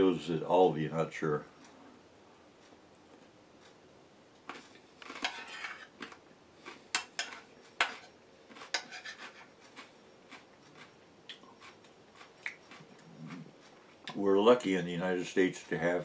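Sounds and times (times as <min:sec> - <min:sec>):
fork scraping a dish: 0:04.5 - 0:11.0.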